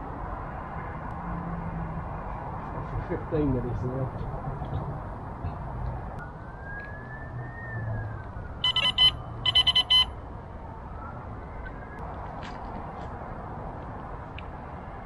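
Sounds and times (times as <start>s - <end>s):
high electronic bite alarm beeps: 8.6s - 10.1s.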